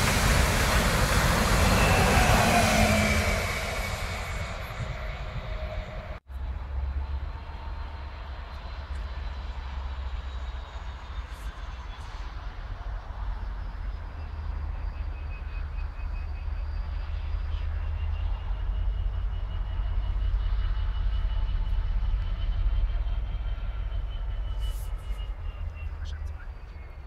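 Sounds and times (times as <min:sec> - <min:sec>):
wind buffeting microphone: 0:00.0 - 0:06.2
distant train whine: 0:00.0 - 0:27.0.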